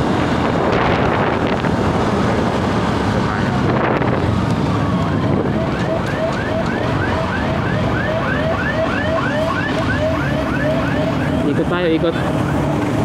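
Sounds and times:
wind noise: 0.0s - 7.9s
motorcycle running: 0.0s - 13.0s
fast warbling siren-like tone: 4.8s - 13.0s.

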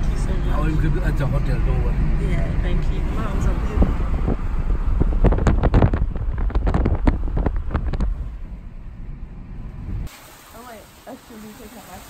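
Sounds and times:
low road rumble: 0.0s - 12.0s
wind buffeting microphone: 0.2s - 10.1s
rapid crackles: 4.9s - 8.4s.

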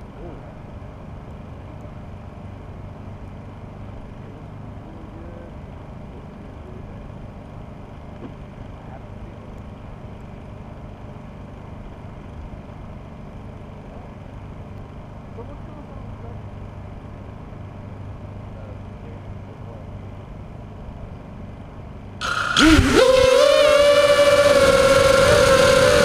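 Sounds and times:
low rumbling background noise: 0.0s - 23.1s.

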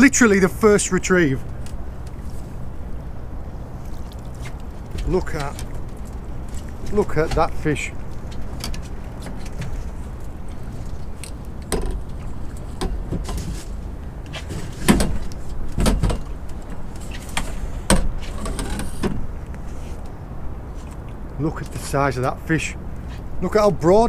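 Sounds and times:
steady low rumble: 0.0s - 24.0s
knocks and clatter in a boat: 4.0s - 19.5s.

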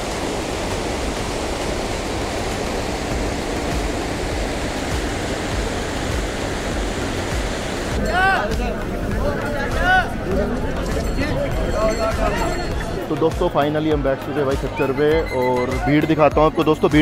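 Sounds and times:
stream rushing over rocks: 0.0s - 10.3s.

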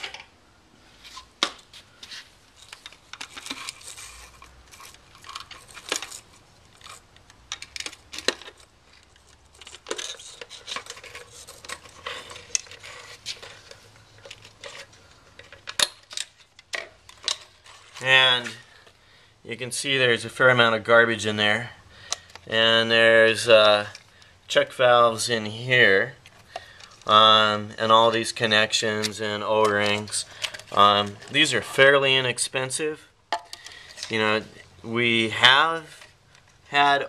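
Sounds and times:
metal pick scraping plastic: 2.0s - 18.9s, 27.9s - 31.5s.

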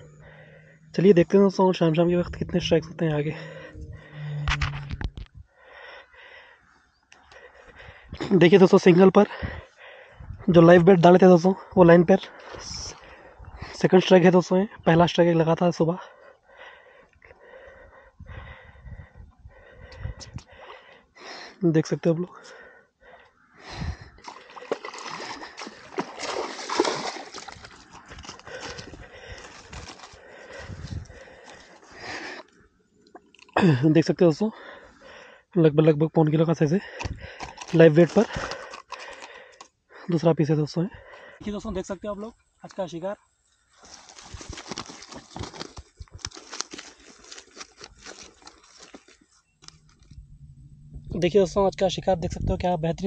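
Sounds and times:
low steady hum: 0.0s - 6.0s, 48.1s - 53.0s
water splashing and sloshing: 24.2s - 32.0s.

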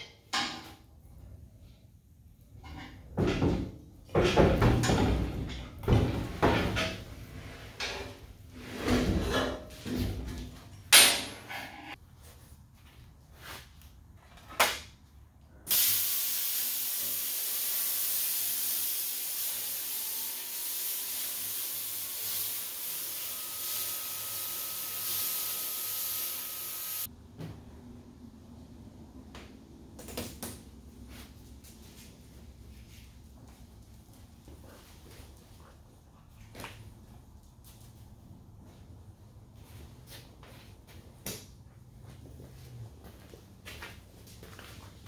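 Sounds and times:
metal handling knocks and clanks: 2.6s - 7.1s, 9.0s - 11.8s
plasma cutter hissing: 15.7s - 27.1s.

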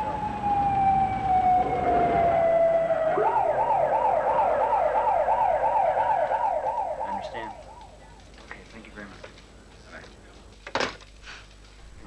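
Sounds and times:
police siren wailing and yelping: 0.0s - 8.4s.

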